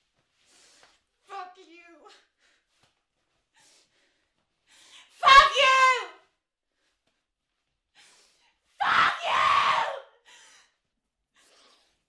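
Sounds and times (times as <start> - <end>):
woman screaming: 5.2 - 6.1, 8.8 - 10.1.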